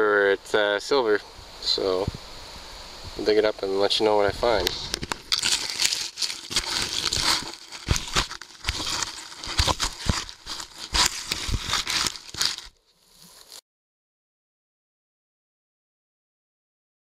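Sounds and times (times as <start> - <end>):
hand digger cutting into soil: 4.9 - 13.6.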